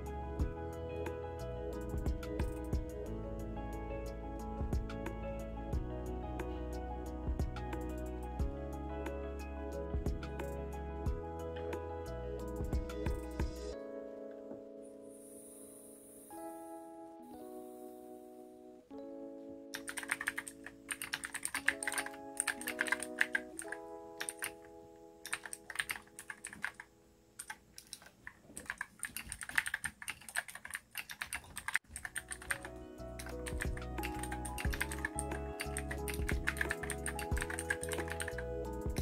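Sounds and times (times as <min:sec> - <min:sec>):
lo-fi background music: 0:00.0 - 0:26.8, 0:32.0 - 0:39.0
mechanical keyboard typing: 0:19.8 - 0:39.0.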